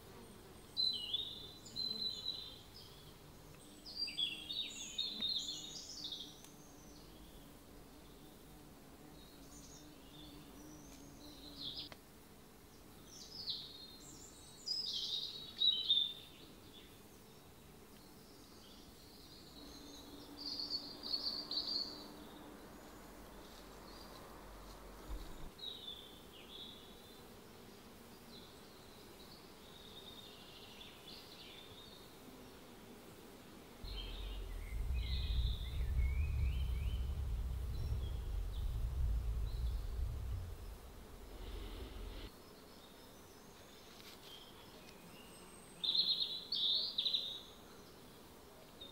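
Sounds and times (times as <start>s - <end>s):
steady low rumble: 33.9s - 42.3s.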